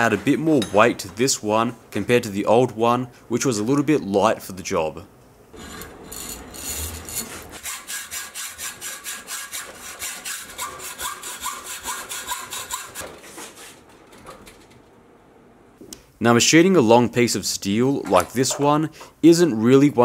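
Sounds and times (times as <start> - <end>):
hacksaw cutting steel bar: 5.6 - 13.2.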